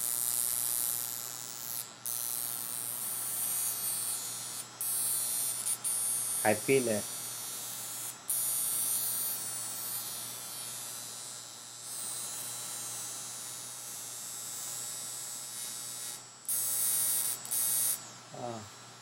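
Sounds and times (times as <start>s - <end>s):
low electrical hum: 0.0s - 19.0s
bursts of high hiss: 6.4s - 7.2s, 17.4s - 18.7s.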